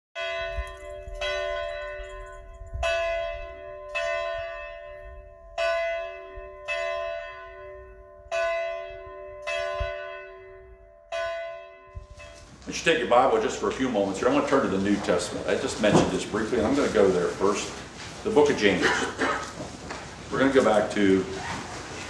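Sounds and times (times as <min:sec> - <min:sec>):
church bell ringing: 0:00.2 - 0:14.7.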